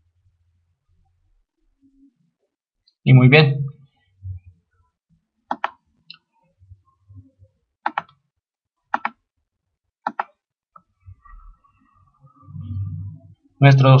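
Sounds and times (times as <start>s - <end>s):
mouse button clicks: 5.5s - 6.2s.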